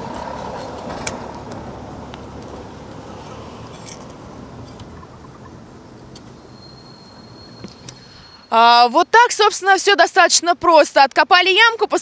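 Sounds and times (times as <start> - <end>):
road traffic noise: 0.0 - 12.0
trowel digging in soil: 3.2 - 4.9.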